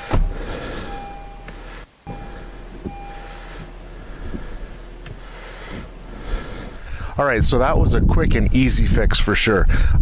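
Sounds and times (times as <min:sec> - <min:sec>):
steady wiper motor whine: 0:00.0 - 0:07.2.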